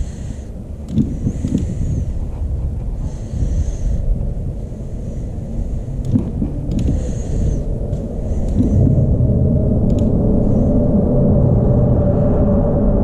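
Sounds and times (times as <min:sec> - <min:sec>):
low hum: 0:00.0 - 0:13.0
steady low rumble: 0:00.0 - 0:13.0
faint clicks: 0:00.8 - 0:01.8, 0:06.0 - 0:07.0, 0:09.8 - 0:10.2.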